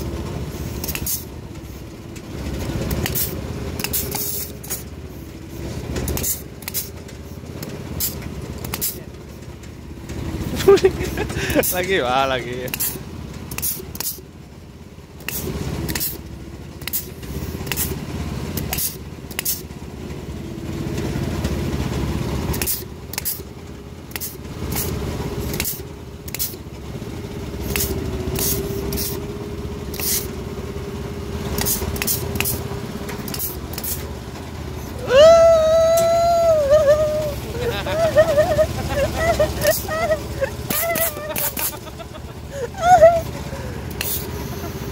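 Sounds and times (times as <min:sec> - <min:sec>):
pruning shears snipping branches: 0:12.7 - 0:14.2, 0:15.2 - 0:16.2, 0:25.5 - 0:26.6, 0:31.6 - 0:32.6, 0:33.2 - 0:34.1.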